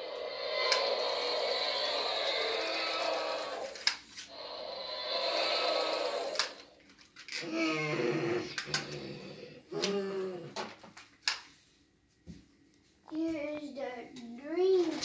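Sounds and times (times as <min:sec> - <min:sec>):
wavering growl: 0:00.0 - 0:06.8, 0:07.4 - 0:10.6
toy dinosaur roars: 0:00.0 - 0:10.6.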